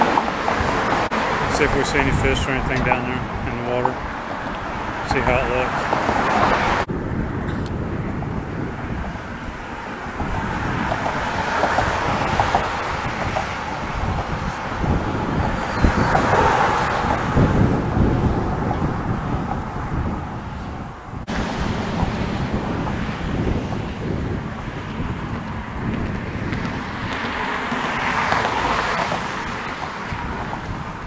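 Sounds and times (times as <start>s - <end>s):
pickup truck passing: 0.0s - 7.9s, 8.6s - 31.0s
road traffic rumble: 0.0s - 31.0s
wind buffeting microphone: 0.0s - 31.0s.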